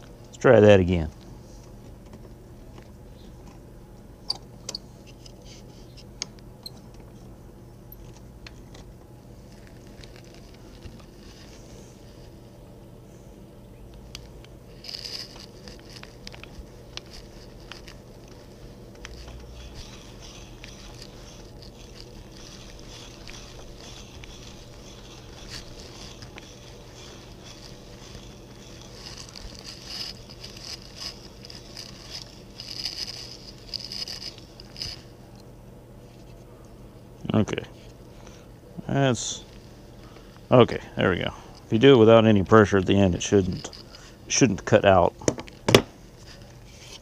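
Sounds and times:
auger bit rasping wood: 17.0s - 35.1s.

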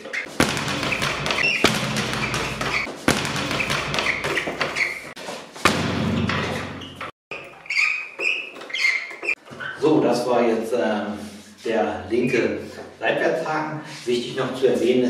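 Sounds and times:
speed bag thumps: 0.3s - 6.8s.

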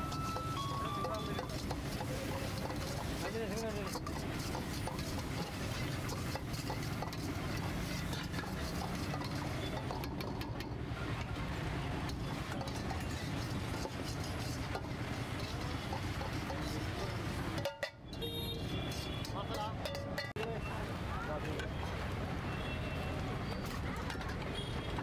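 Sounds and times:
metal spatula scraping a wok: 0.0s - 10.7s, 12.1s - 20.3s
street noise: 0.0s - 25.0s.

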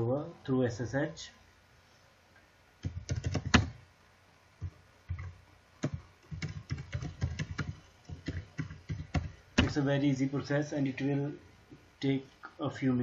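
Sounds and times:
keyboard typing: 2.8s - 3.8s, 4.6s - 9.8s.

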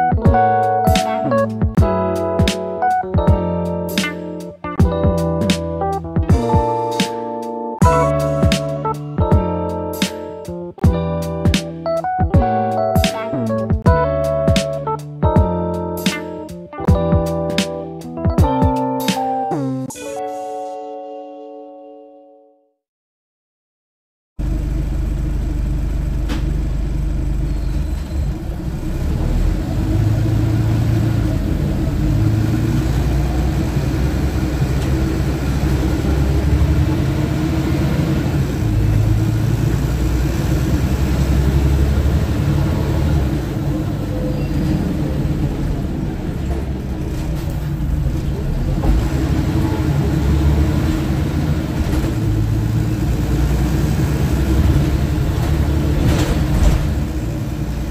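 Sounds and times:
bus engine drone: 24.4s - 57.9s
road rumble: 24.4s - 57.9s.

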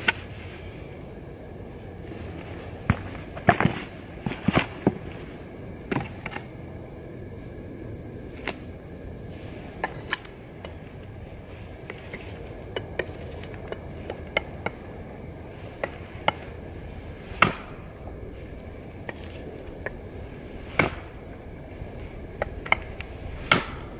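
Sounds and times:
knife chopping wooden stick: 17.4s - 17.8s, 22.7s - 23.9s.

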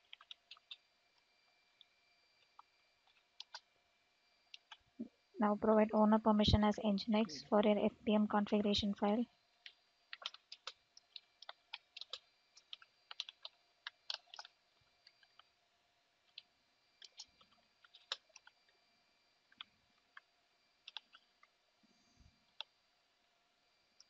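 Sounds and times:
computer keyboard typing: 0.0s - 0.8s, 2.5s - 3.7s, 4.5s - 4.8s, 9.6s - 15.4s, 16.3s - 18.6s, 19.5s - 21.3s.

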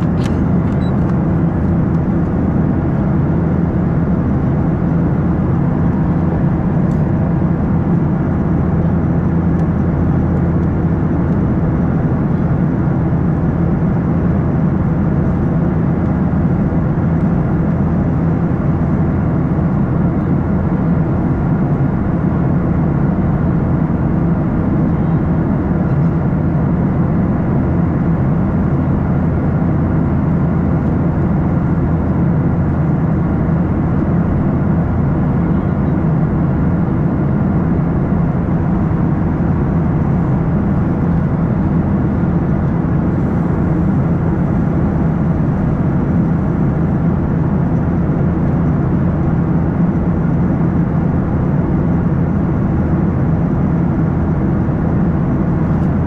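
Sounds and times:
jet engines running: 0.0s - 56.0s.

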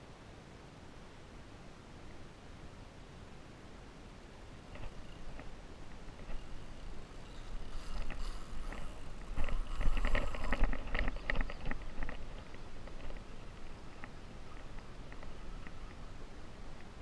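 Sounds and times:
fishing reel drag ticking: 4.1s - 12.2s.

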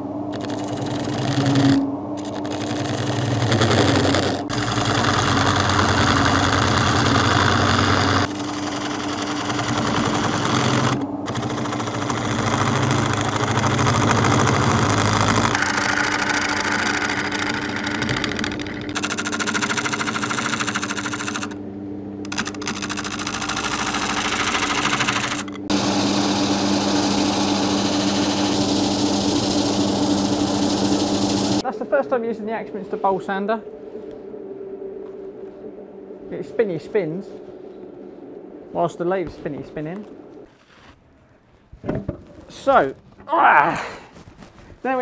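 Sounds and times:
lathe motor hum: 0.3s - 21.6s, 22.2s - 31.6s
turning tool cutting wood: 0.3s - 21.6s, 22.3s - 31.6s.

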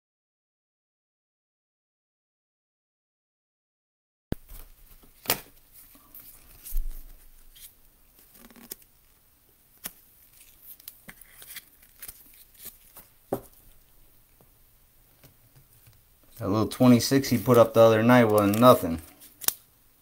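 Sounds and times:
plastic sleeve crinkling: 4.4s - 9.2s, 9.8s - 14.0s, 15.2s - 19.7s
trading cards clicking and tapping: 17.5s - 19.6s.

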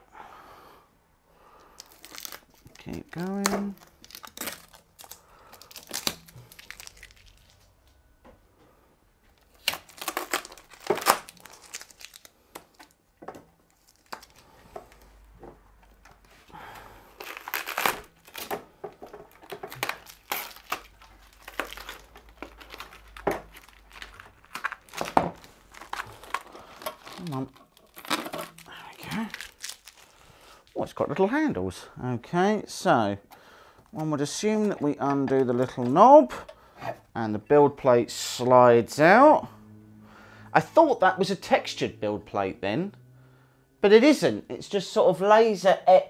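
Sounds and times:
plastic packing crinkling: 1.6s - 7.8s, 9.3s - 31.0s
tape ripping: 1.8s - 7.6s, 9.4s - 13.0s, 13.7s - 15.1s, 17.2s - 30.3s.

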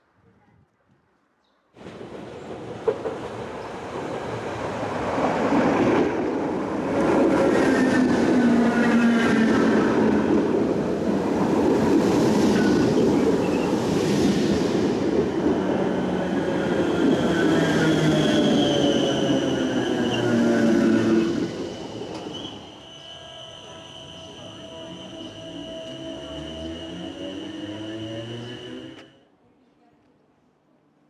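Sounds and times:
train wheels rumbling on rails: 1.8s - 22.7s
electric train whining: 6.5s - 29.2s.

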